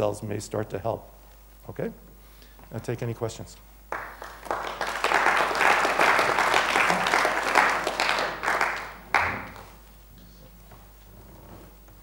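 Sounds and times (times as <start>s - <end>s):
audience applauding: 3.9s - 9.8s.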